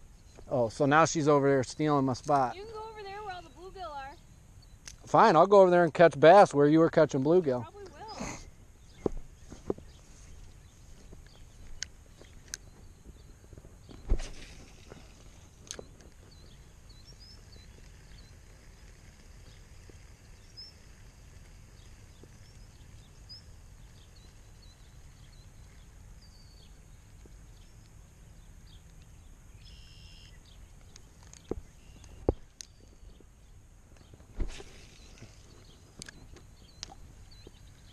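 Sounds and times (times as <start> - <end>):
low outdoor hum: 0.0 - 37.9
bird chirps: 7.6 - 37.9.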